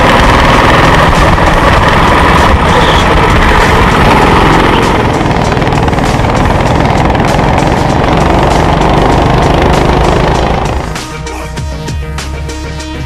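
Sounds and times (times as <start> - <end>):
wind rushing over microphone: 0.0 - 7.5
go-kart engine running: 0.0 - 11.1.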